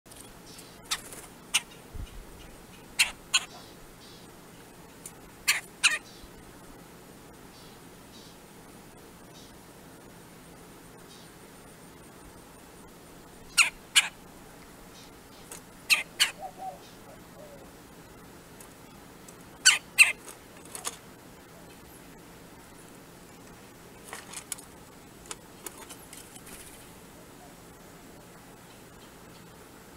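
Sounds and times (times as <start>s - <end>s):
faint steady hiss: 0.1s - 29.9s
sharp bird calls: 0.5s - 4.3s, 5.4s - 6.4s, 13.5s - 14.2s, 14.9s - 17.7s, 19.5s - 20.3s.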